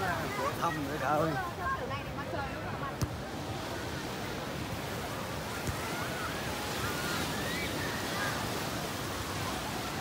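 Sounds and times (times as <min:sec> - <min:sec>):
waves washing on sand: 0:00.0 - 0:10.0.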